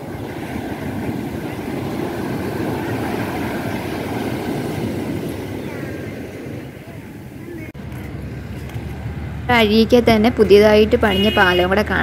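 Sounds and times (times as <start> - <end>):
waves breaking on beach: 0.0 - 7.8.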